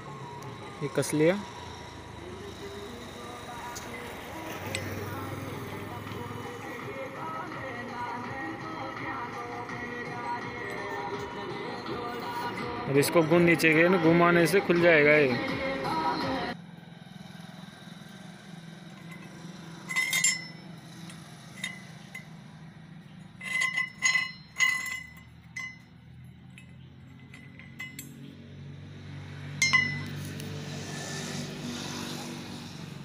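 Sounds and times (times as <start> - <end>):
bolt clinking against metal: 19.0 - 22.3, 23.4 - 28.4, 29.6 - 30.4.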